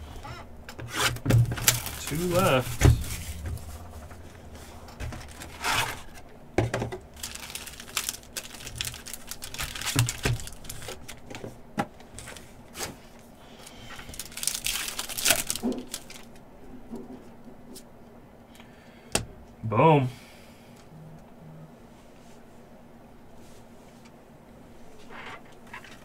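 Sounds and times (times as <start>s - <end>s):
wrapper crinkling and tearing: 0.9s - 3.4s, 7.1s - 11.4s, 13.6s - 16.4s.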